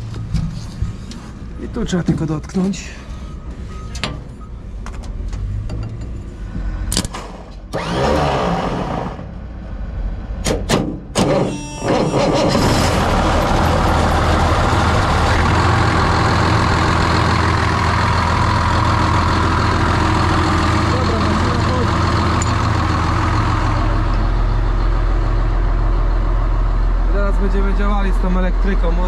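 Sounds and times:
starter motor cranking: 7.7 - 9.0
diesel engine idling: 12.4 - 29.0.

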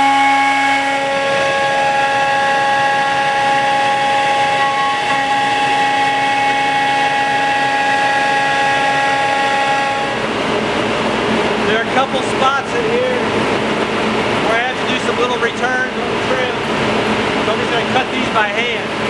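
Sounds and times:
router cutting wood: 0.0 - 10.2
router spindle whine: 0.0 - 10.3.

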